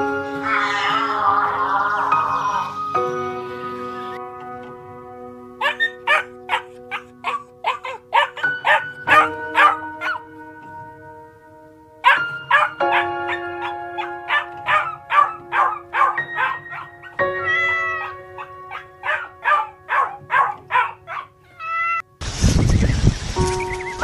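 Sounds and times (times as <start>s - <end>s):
background music with held notes: 0.0s - 22.2s, 22.9s - 24.0s
dog barking: 5.6s - 10.3s, 12.0s - 21.4s.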